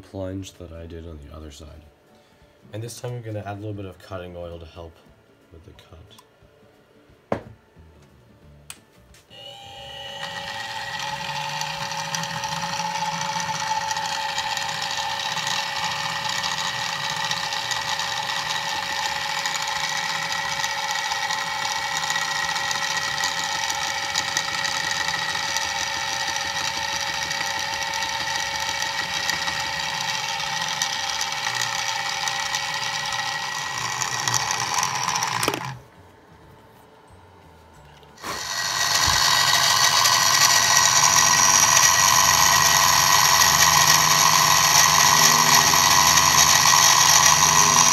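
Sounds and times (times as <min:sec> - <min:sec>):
gritty metal cutting noise: 0:09.3 - 0:35.9, 0:38.1 - 0:47.9
milling machine whine: 0:09.3 - 0:35.9, 0:37.8 - 0:47.9.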